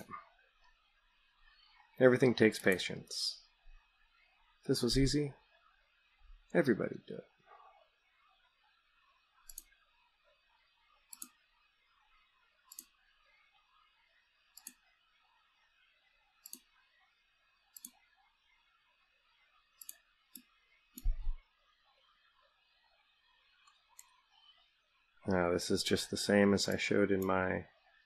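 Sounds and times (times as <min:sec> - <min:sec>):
faint steady hiss: 0:00.0 - 0:28.0
mouse buttons clicking: 0:02.6 - 0:02.8, 0:09.5 - 0:09.8, 0:11.1 - 0:11.4, 0:17.7 - 0:18.0, 0:19.8 - 0:21.4.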